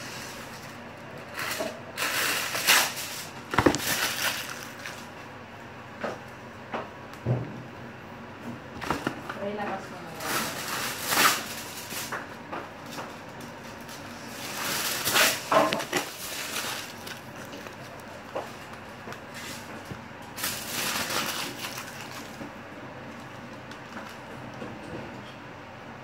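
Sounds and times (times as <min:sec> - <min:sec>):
aluminium foil crinkling: 0:00.0 - 0:05.2, 0:09.4 - 0:22.5, 0:23.1 - 0:24.3.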